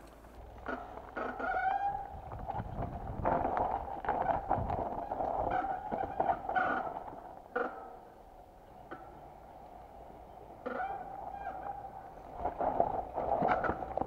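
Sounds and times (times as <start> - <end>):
bike rattling on rocks: 0.0 - 8.2, 10.5 - 14.0
bike disc brakes squealing: 0.7 - 2.7, 4.1 - 7.9, 10.6 - 12.0.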